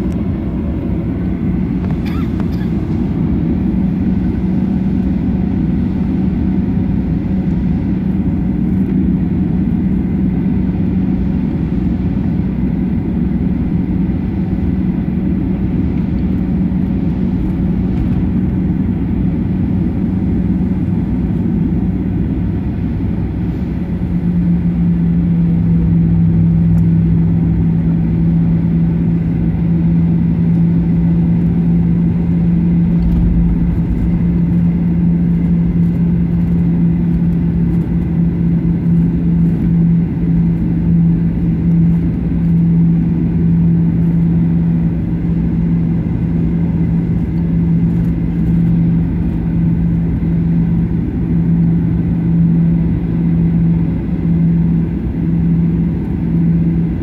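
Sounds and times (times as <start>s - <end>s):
jet engines humming in cabin: 0.0s - 57.0s.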